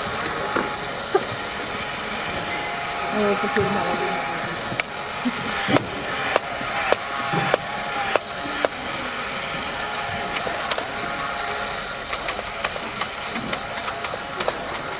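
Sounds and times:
toy motor whirring: 0:00.0 - 0:14.9
sharp clicks: 0:04.7 - 0:09.3, 0:10.2 - 0:14.9.

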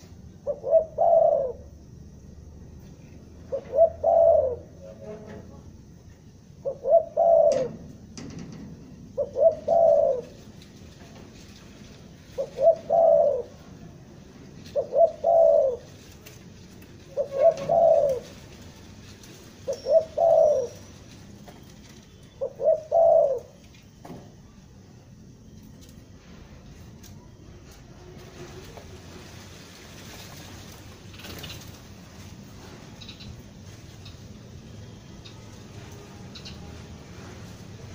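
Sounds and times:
dove cooing: 0:00.0 - 0:02.1, 0:03.3 - 0:05.1, 0:06.6 - 0:08.0, 0:09.1 - 0:10.6, 0:12.2 - 0:13.8, 0:14.6 - 0:16.2, 0:16.9 - 0:21.1, 0:21.9 - 0:23.7.

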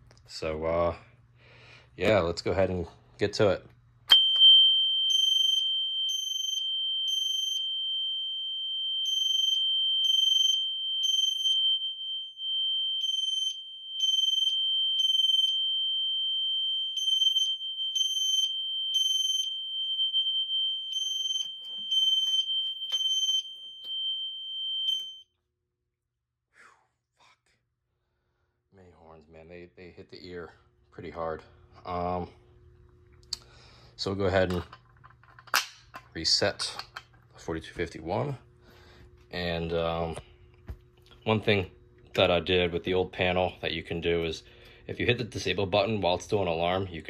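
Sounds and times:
high piercing alarm tone: 0:04.1 - 0:25.3
fire alarm horn beeping: 0:04.2 - 0:25.3.

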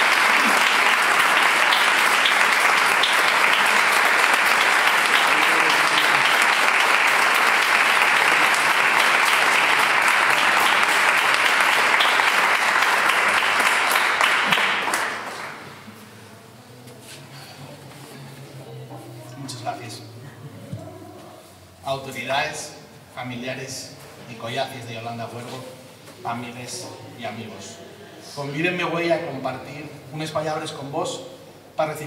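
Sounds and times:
audience applauding: 0:00.0 - 0:15.9.

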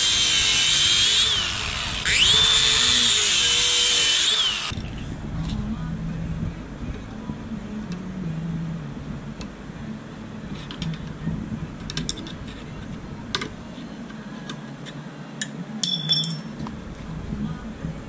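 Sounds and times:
low hum: 0:04.6 - 0:18.0.

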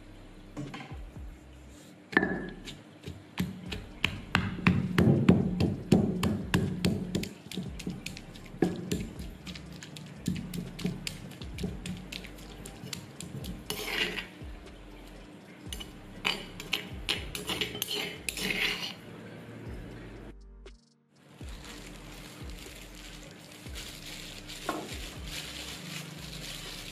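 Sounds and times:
pestle pounding in stone mortar: 0:02.2 - 0:14.3, 0:16.6 - 0:18.5
pestle scraping mortar walls: 0:02.6 - 0:14.3, 0:15.7 - 0:19.0.

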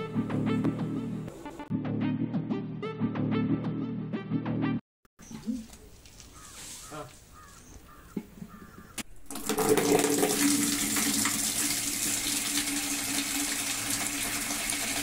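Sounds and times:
water pouring into plastic bucket: 0:09.1 - 0:15.0.

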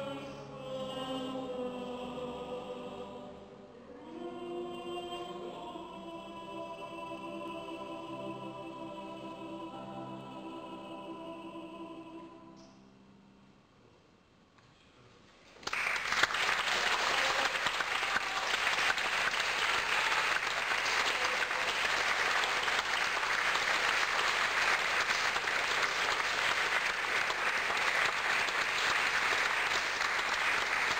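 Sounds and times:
audience applause: 0:15.6 - 0:30.9.

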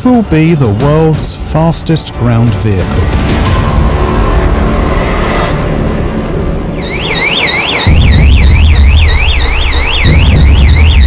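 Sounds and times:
electronic warning alarm warbling: 0:06.7 - 0:11.0.

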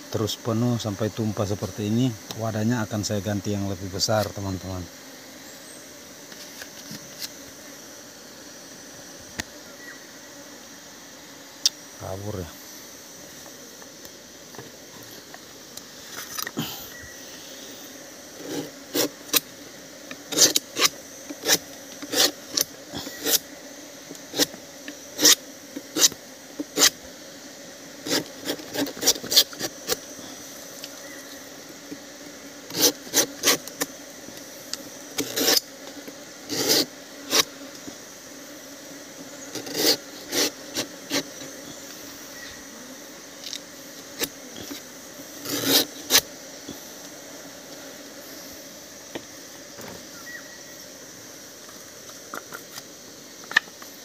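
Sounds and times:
knife slicing stalk: 0:45.4 - 0:46.3.

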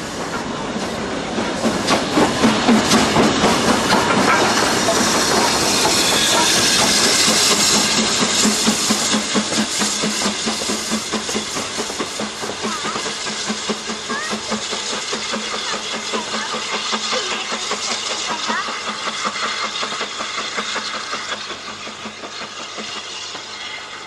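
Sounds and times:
hissing steam: 0:00.0 - 0:24.0
steam locomotive exhaust beats: 0:00.0 - 0:24.0.

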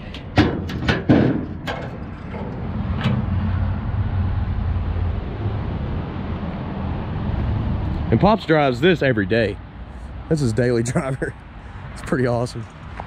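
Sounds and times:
hood latch clicks and clunks: 0:00.0 - 0:03.4.

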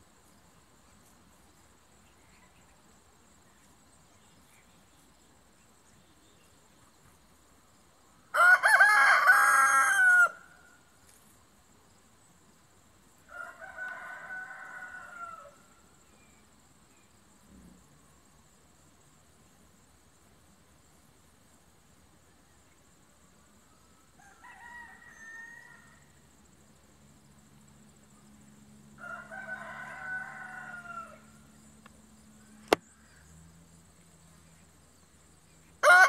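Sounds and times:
rooster crowing: 0:08.3 - 0:10.6, 0:13.3 - 0:15.7, 0:24.2 - 0:26.1, 0:29.0 - 0:31.5, 0:35.8 - 0:36.0
faint rooster crow: 0:08.3 - 0:10.8, 0:13.2 - 0:16.3, 0:23.5 - 0:26.4, 0:28.8 - 0:31.7, 0:35.8 - 0:36.0.

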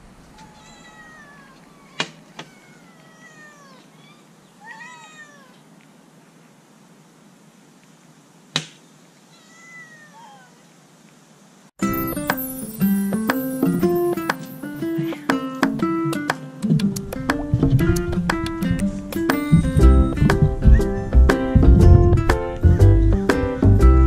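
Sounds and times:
cat meowing: 0:00.3 - 0:05.6, 0:09.3 - 0:10.6.

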